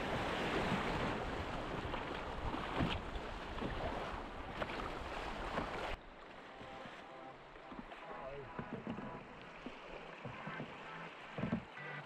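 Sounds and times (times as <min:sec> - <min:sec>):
canoe paddles splashing in water: 0:00.0 - 0:12.0
rushing water: 0:00.0 - 0:12.0.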